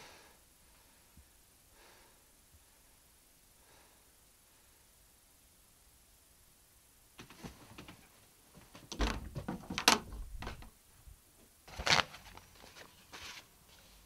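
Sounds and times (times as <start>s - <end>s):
paper rustling and crackling: 11.7s - 14.0s.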